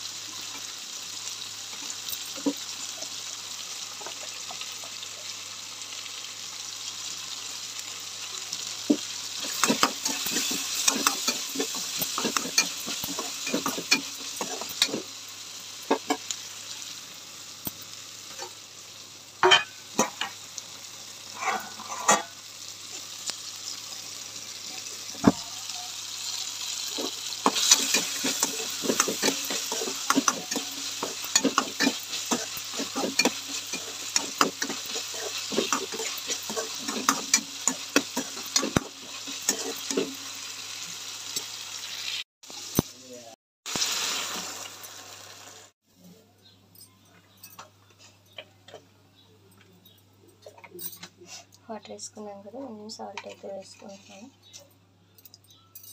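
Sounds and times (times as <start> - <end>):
food sizzling in hot oil: 0.0 - 45.8
metal spatula scraping a pan: 9.4 - 15.2, 21.3 - 23.1, 26.8 - 40.3, 53.0 - 54.3.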